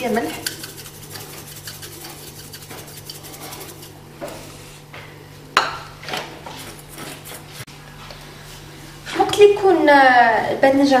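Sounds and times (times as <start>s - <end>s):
salt shaker rattling: 0.3s - 4.0s.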